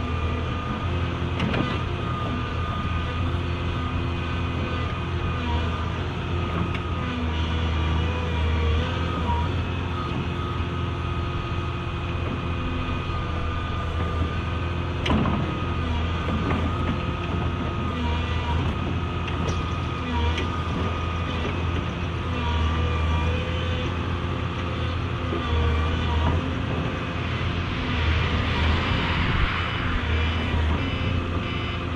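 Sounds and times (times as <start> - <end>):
excavator diesel engine running: 0.0 - 31.9
wavering hydraulic whine: 7.5 - 21.6, 22.4 - 31.9.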